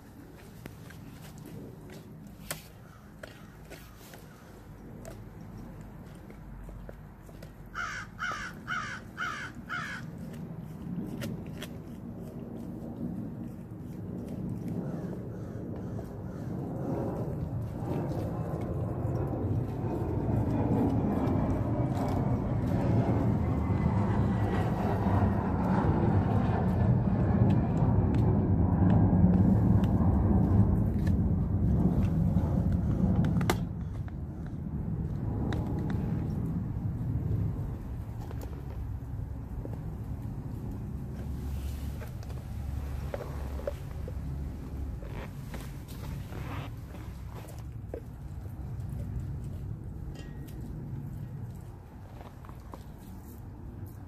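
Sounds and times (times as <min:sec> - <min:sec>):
dog gnawing on bone: 0:00.2 - 0:54.0
crow cawing: 0:07.7 - 0:10.1
low rumble: 0:10.4 - 0:54.0.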